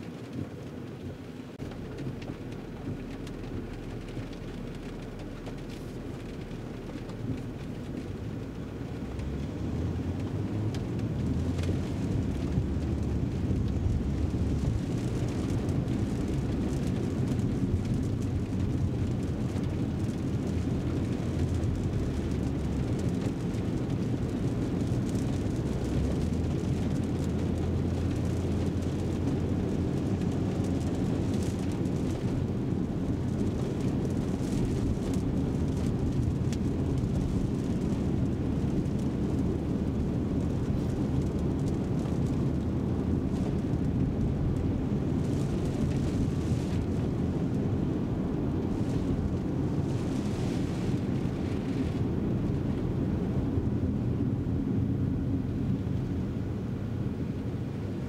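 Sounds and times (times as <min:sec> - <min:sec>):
tyres hissing on wet road: 0:08.4 - 0:53.2.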